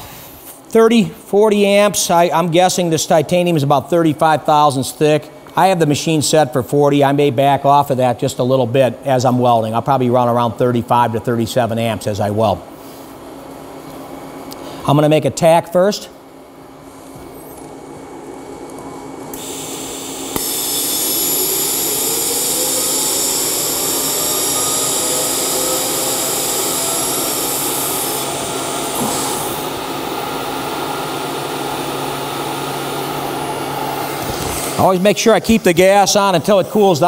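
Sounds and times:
welding arc hissing: 19.3 - 36.0.

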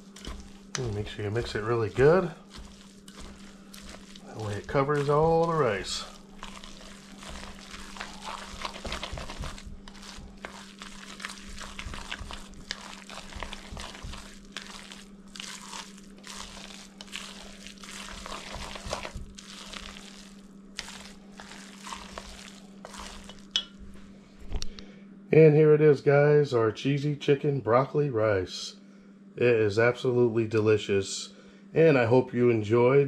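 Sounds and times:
utensil scraping rice in bowl: 0.0 - 23.6
steady low hum: 0.0 - 33.0.

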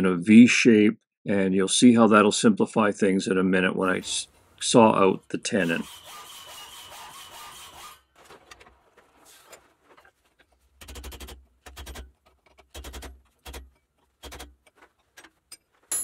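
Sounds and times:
hacksaw cutting steel: 5.4 - 8.1.

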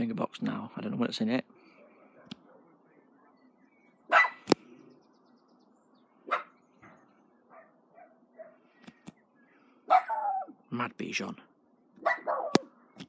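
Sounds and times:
small dog barking: 4.1 - 4.5, 6.3 - 6.6, 7.5 - 8.6, 9.9 - 10.6, 12.0 - 12.7.

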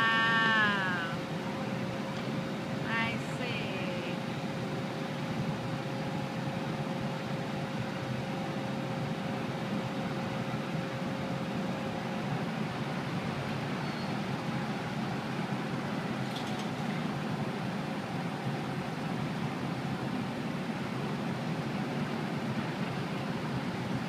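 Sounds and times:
traffic noise: 0.0 - 5.8
machinery hum: 0.0 - 16.3.

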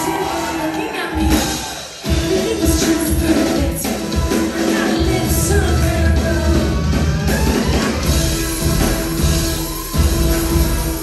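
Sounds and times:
woman singing: 0.0 - 7.1
heavy drums: 0.0 - 11.0
live noise-pop band music: 0.0 - 11.0.

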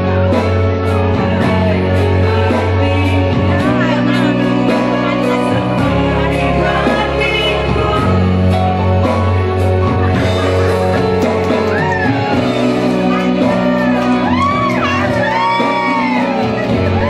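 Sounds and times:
backing music through loudspeaker: 0.0 - 17.0
woman singing into a microphone: 0.9 - 17.0.

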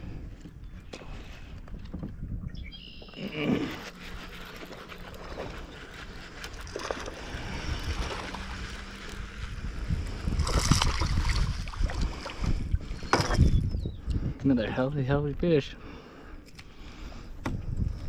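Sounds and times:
wind noise on microphone: 0.0 - 2.8, 3.4 - 15.5, 16.9 - 18.0
fish splashing in water: 10.4 - 13.4.

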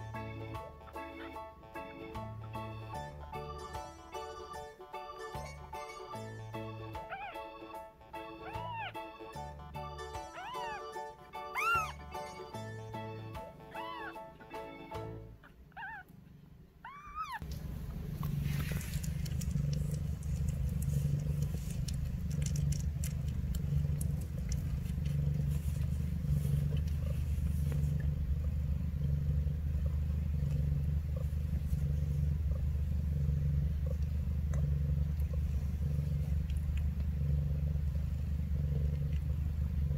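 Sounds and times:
cat purring: 8.4 - 14.2, 15.3 - 39.9
kittens suckling clicks: 17.4 - 28.2, 33.8 - 37.2.

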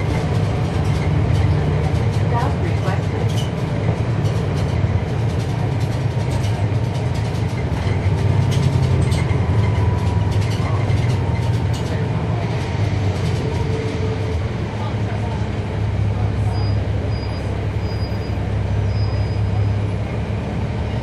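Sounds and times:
interior rattles and clicks: 0.0 - 14.6
diesel bus engine rumbling: 0.0 - 21.0
road noise: 0.0 - 21.0.

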